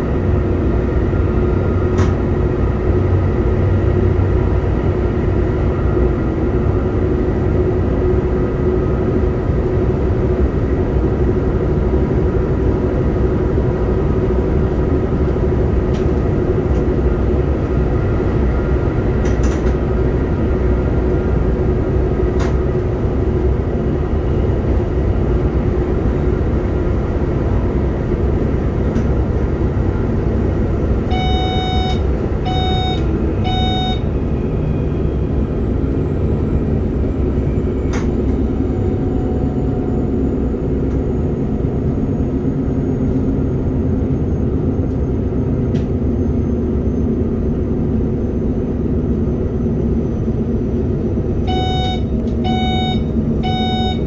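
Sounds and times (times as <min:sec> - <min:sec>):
short electronic beeps: 0:31.1 - 0:34.1, 0:51.5 - 0:54.0.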